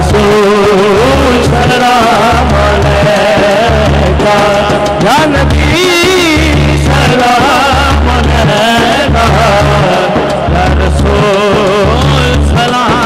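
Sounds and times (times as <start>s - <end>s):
heavy low drum beat: 0.0s - 13.0s
ornamented devotional melody: 0.0s - 13.0s.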